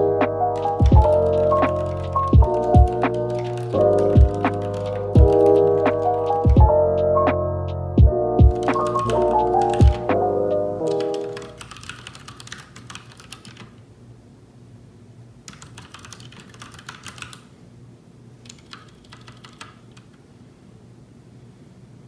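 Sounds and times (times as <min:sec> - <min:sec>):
background music: 0:00.0 - 0:11.6.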